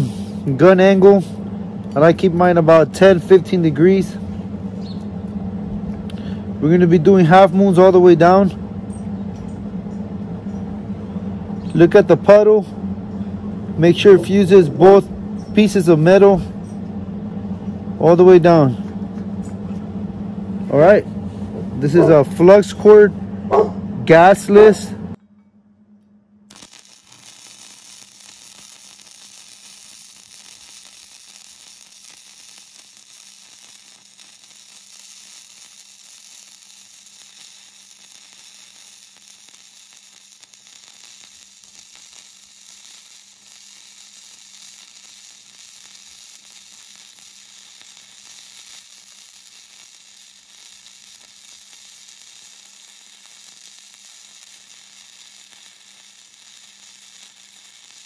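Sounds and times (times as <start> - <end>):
welding arc crackling hiss: 0.0 - 8.6, 11.0 - 16.9, 17.5 - 19.8, 20.5 - 25.1, 26.5 - 58.0.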